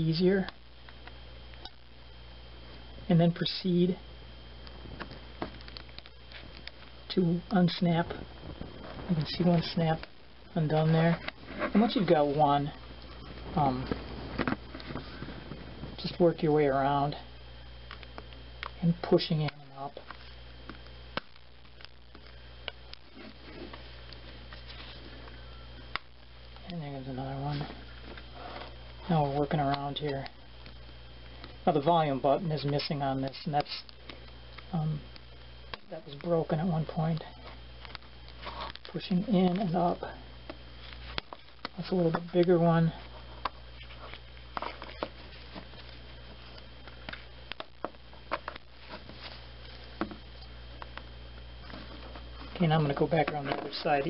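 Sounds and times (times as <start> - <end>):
steady low hum: 0.0 - 54.0
faint scratching: 7.8 - 16.2, 37.2 - 39.0.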